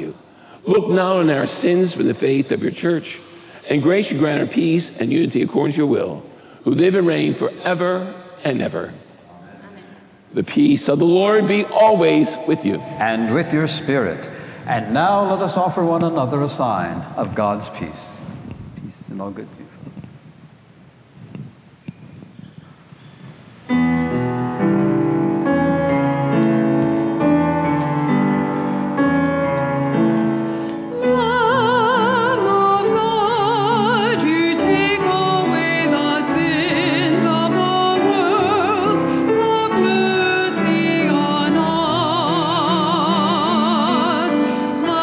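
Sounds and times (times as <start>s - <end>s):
keyboard chords: 23.7s - 44.8s
person singing with vibrato: 27.2s - 45.0s.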